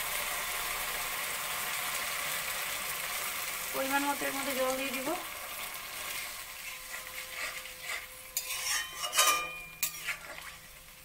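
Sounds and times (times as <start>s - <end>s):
curry sizzling in a metal pan: 0.0s - 11.0s
metal spatula scraping a pan: 6.0s - 10.9s.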